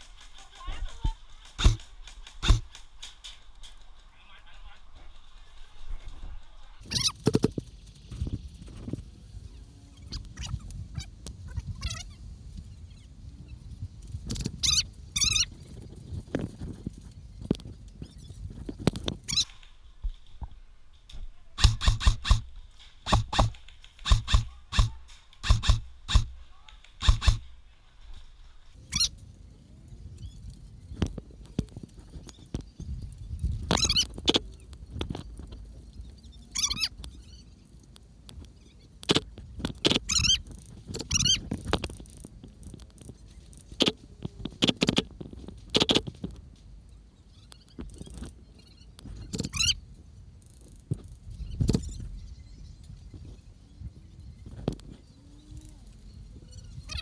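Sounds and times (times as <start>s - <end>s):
airsoft gun shots: 1.4s - 3.2s, 21.6s - 26.4s, 27.0s - 27.6s.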